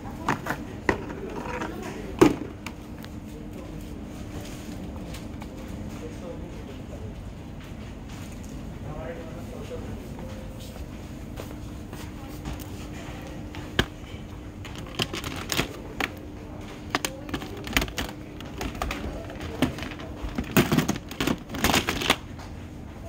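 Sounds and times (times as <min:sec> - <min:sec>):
plastic baskets clicking and knocking: 0:00.2 - 0:02.8, 0:12.5 - 0:22.4.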